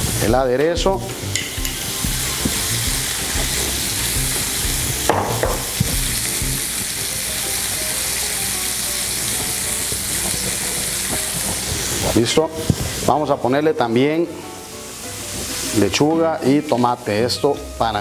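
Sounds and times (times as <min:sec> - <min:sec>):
burger patty sizzling: 0:00.0 - 0:18.0
brief knock: 0:05.1 - 0:05.9.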